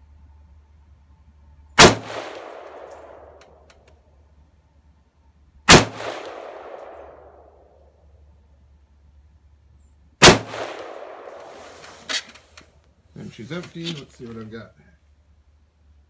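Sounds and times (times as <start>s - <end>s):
rifle shots with echo: 1.8s - 3.6s, 5.7s - 7.8s, 10.2s - 11.8s.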